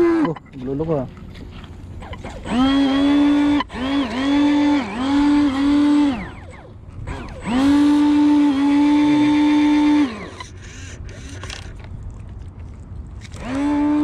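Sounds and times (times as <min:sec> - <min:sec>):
electric motor whine: 0:02.0 - 0:11.6, 0:13.3 - 0:14.0.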